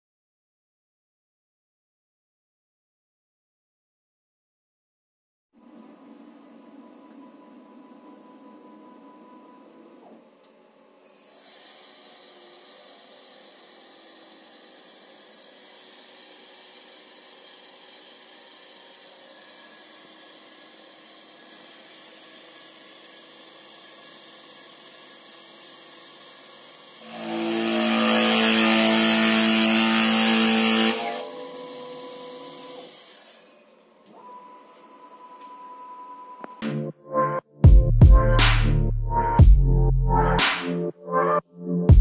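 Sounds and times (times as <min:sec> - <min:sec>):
spindle motor whine: 0:06.7 - 0:10.3, 0:11.0 - 0:36.6
router bit milling wood: 0:11.2 - 0:33.9.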